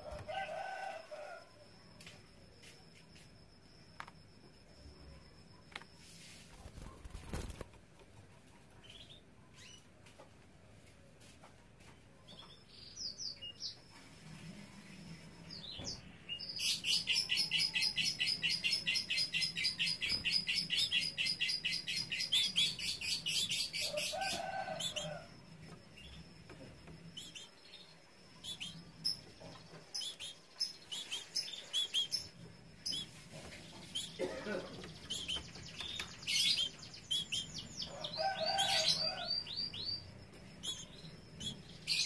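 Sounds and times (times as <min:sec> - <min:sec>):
canary trilling: 0:28.4 - 0:42.0.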